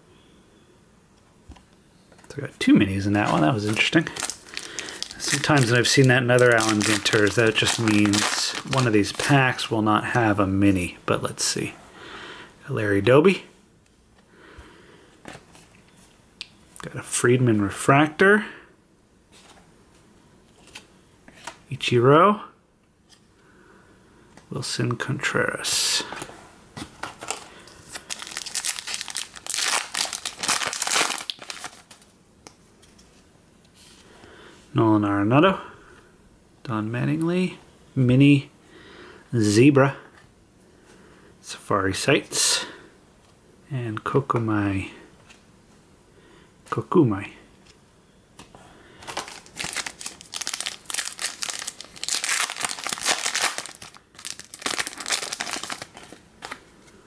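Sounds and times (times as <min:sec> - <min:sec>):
foil wrapper crinkling: 0:03.2 - 0:09.6, 0:27.2 - 0:32.1, 0:49.0 - 0:56.6.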